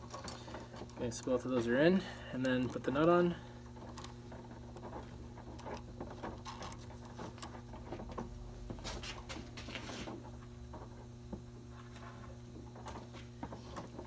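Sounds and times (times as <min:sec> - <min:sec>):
wire cable and shackles handled: 0:00.0 - 0:11.0
steady low hum: 0:00.0 - 0:14.0.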